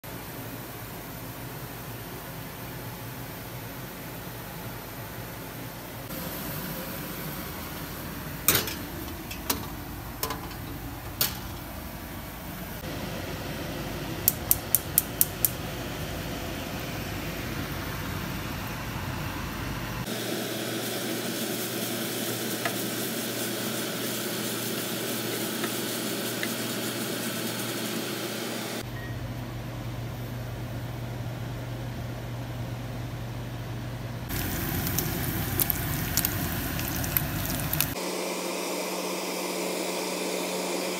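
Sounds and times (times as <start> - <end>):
utensils clinking: 8.5 - 11.7
food sizzling in a pan: 20.0 - 28.8, 34.3 - 38.2.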